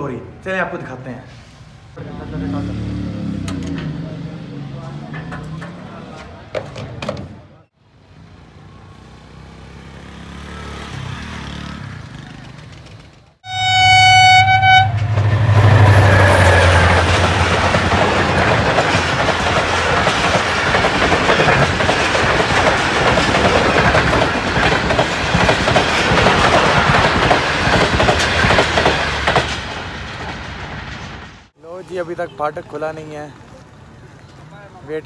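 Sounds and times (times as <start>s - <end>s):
locomotive engine drone: 12.7s - 21.8s
train horn: 13.4s - 17.2s
train wheels clattering on rails: 15.0s - 31.2s.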